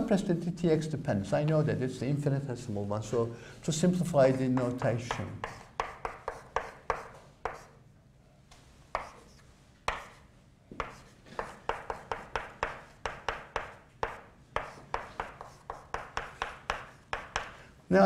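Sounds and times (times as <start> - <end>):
chalk tapping and scraping: 4.2 - 7.8, 8.9 - 17.6.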